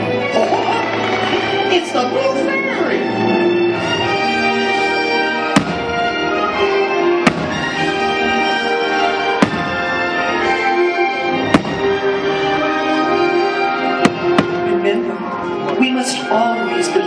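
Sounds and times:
orchestral music: 0:00.0 - 0:17.0
fireworks bangs: 0:05.5 - 0:06.2, 0:07.2 - 0:08.4, 0:09.3 - 0:10.3, 0:11.4 - 0:12.3, 0:13.9 - 0:14.8.

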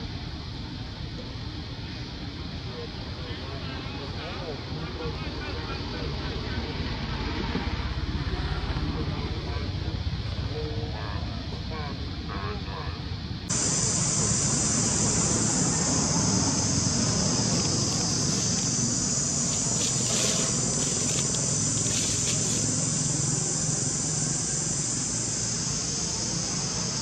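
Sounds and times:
high-pitched insect chorus: 0:00.0 - 0:27.0
low steady rumble: 0:00.0 - 0:27.0.

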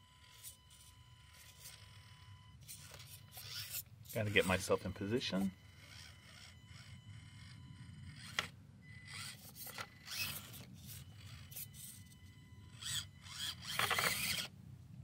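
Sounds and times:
high electric motor whine: 0:00.0 - 0:14.5
tyres scraping against rock: 0:12.8 - 0:14.5.

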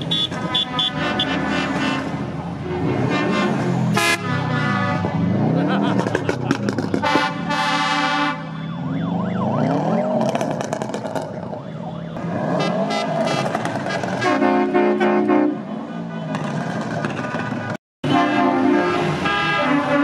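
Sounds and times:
vehicle horn blast: 0:00.0 - 0:02.2, 0:03.0 - 0:05.2, 0:07.0 - 0:08.6, 0:14.1 - 0:15.7, 0:18.0 - 0:20.0
siren sliding in pitch: 0:07.5 - 0:13.4.

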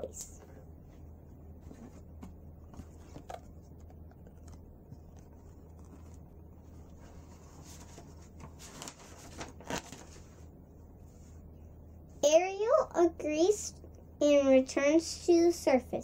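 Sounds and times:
low steady hum: 0:00.0 - 0:16.0
book pages rustling and turning: 0:00.9 - 0:10.5.

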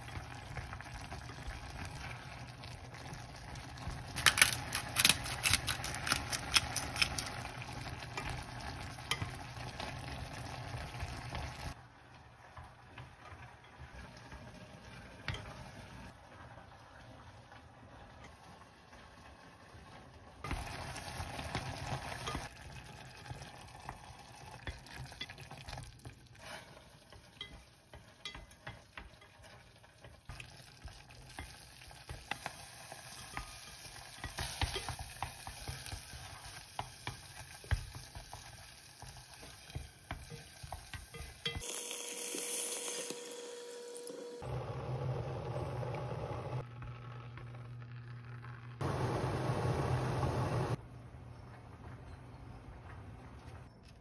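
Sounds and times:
soft sizzle: 0:00.0 - 0:54.0
water pouring into pot: 0:20.4 - 0:27.5, 0:29.7 - 0:43.4.

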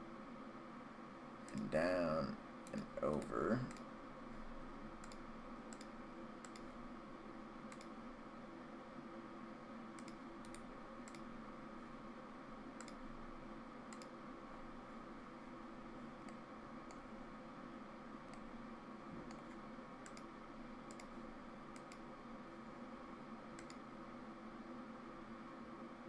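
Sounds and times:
faint steady hum: 0:00.0 - 0:26.0
computer mouse clicking: 0:02.6 - 0:03.9, 0:05.0 - 0:06.7, 0:07.7 - 0:08.0, 0:10.0 - 0:11.3, 0:12.8 - 0:13.0, 0:13.9 - 0:14.2, 0:16.2 - 0:17.1, 0:19.3 - 0:22.1, 0:23.5 - 0:23.9.

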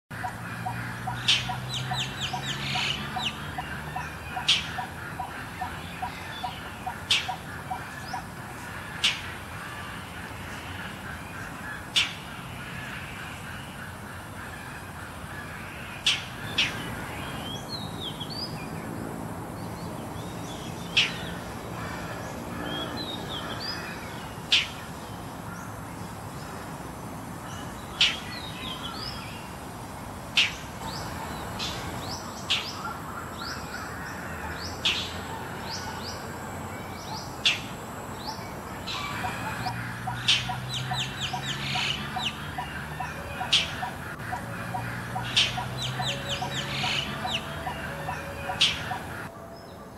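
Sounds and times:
small birds chirping: 0:00.1 - 0:49.3
low repeated bird notes: 0:00.1 - 0:49.7
bird harsh scolding calls: 0:38.8 - 0:49.3.

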